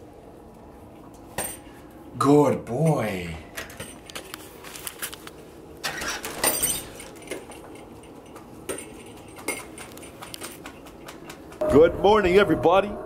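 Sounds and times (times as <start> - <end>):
metal jingle bells jangling: 6.3 - 10.7.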